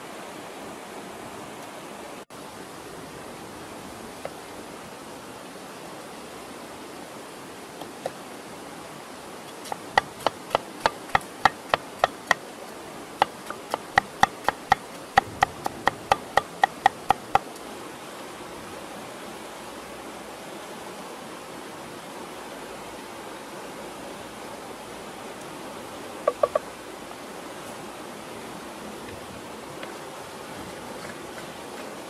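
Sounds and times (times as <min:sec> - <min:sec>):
steady background hiss: 0:00.0 - 0:32.0
cleaver chopping on board: 0:09.7 - 0:12.4, 0:13.2 - 0:17.4.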